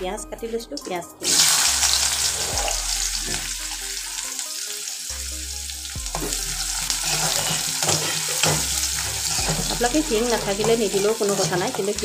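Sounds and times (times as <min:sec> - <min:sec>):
onions sizzling in oil: 0:01.2 - 0:12.0
spoon stirring and knocking pan: 0:06.0 - 0:12.0.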